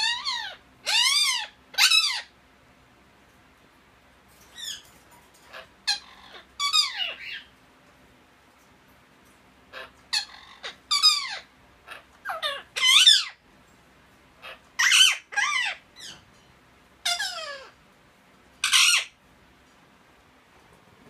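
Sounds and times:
parakeets squawking: 0.0s - 2.4s, 4.4s - 7.6s, 9.6s - 13.4s, 14.3s - 16.4s, 17.0s - 17.9s, 18.6s - 19.2s.

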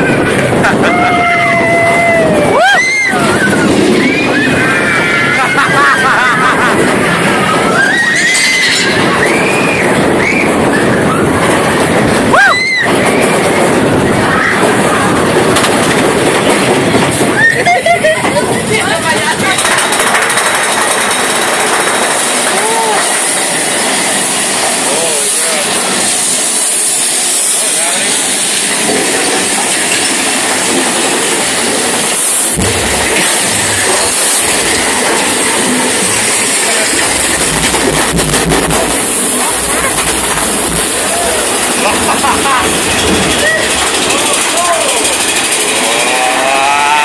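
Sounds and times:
rider whooping: 0.0s - 15.2s, 17.2s - 18.2s, 45.7s - 47.0s
deep rumbling: 0.0s - 47.0s
roller coaster rattling on track: 0.0s - 47.0s.

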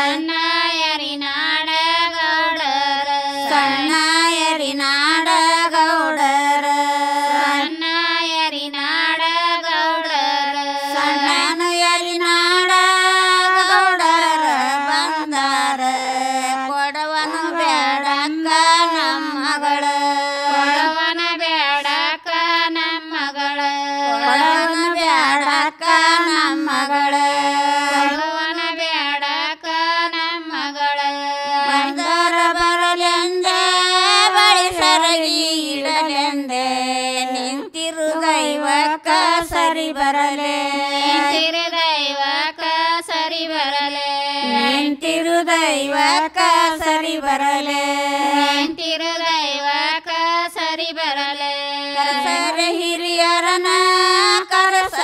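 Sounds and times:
women singing folk song: 0.0s - 55.0s.

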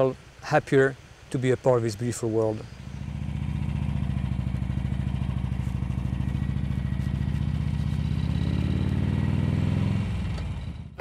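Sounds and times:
motorcycle engine cruising: 2.6s - 11.0s.

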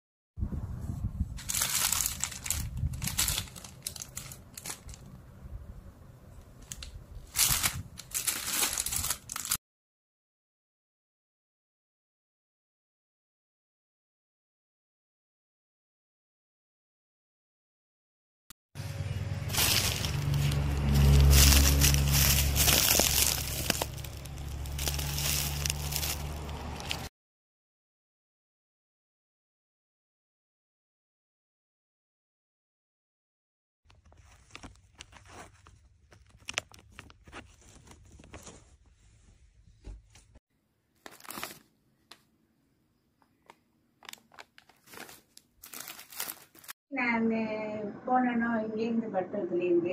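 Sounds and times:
plastic packaging crinkling: 1.4s - 5.2s, 6.6s - 9.6s, 19.4s - 27.1s, 33.9s - 38.6s, 41.0s - 42.2s, 43.4s - 46.8s.

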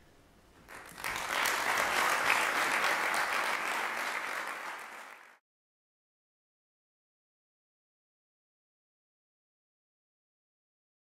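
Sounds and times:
audience applause: 0.7s - 5.4s.

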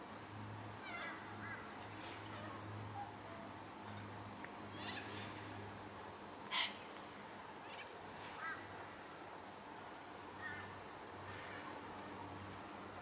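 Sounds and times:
insect drone: 0.0s - 13.0s
short bird calls: 6.5s - 6.8s.

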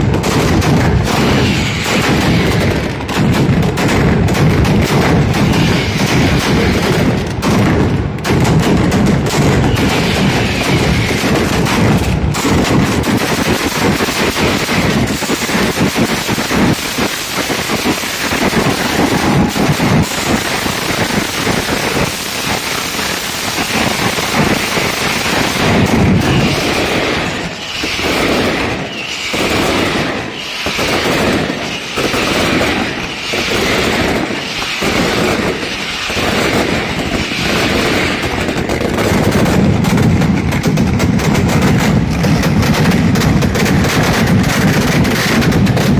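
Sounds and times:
deep heavy blasts: 0.0s - 35.6s
firecrackers banging rapidly: 0.0s - 45.9s.

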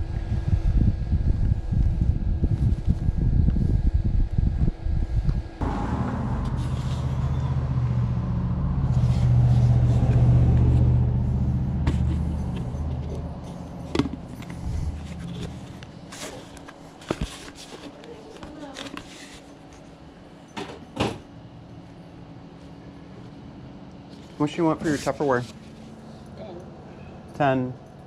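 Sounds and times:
vehicle engine humming: 5.5s - 17.0s.

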